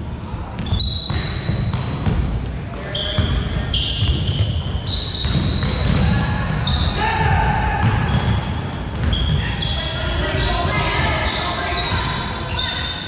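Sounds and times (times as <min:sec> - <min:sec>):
sneakers squeaking on hardwood: 0:00.4 - 0:13.0
basketball bouncing: 0:00.6 - 0:02.4, 0:03.1 - 0:09.5.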